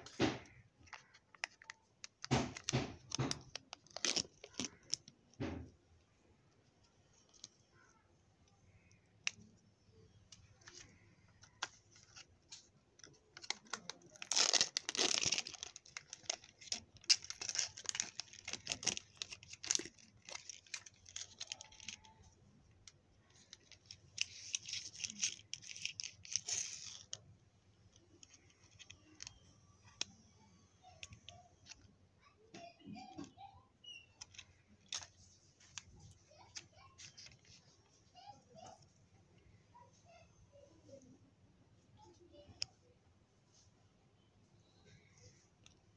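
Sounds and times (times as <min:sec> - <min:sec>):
plastic wrapping crinkling and tearing: 0:00.5 - 0:05.2, 0:10.3 - 0:22.4, 0:23.3 - 0:27.2, 0:33.8 - 0:37.8.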